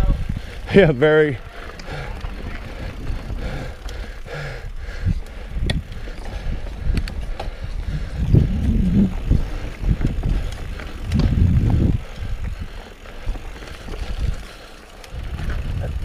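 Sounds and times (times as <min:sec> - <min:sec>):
mountain bike rumbling over dirt: 0:00.1 - 0:16.0
bike knocks and rattles: 0:05.6 - 0:12.5.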